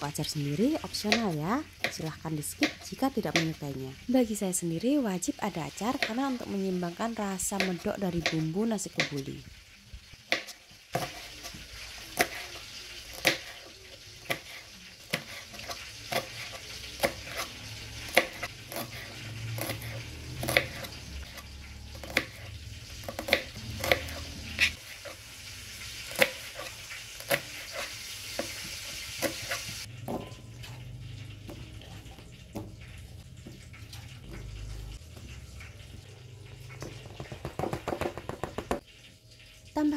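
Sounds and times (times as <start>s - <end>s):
chicken frying in oil: 0.0s - 39.9s
knife chopping on plastic board: 10.3s - 13.6s, 14.2s - 17.5s, 18.1s - 20.9s, 22.0s - 25.2s, 26.1s - 30.2s, 36.8s - 38.8s.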